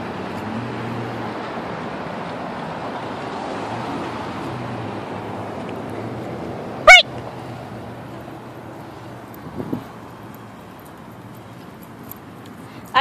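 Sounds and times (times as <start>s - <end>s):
road traffic noise: 0.0s - 13.0s
animal call: 6.9s - 7.1s.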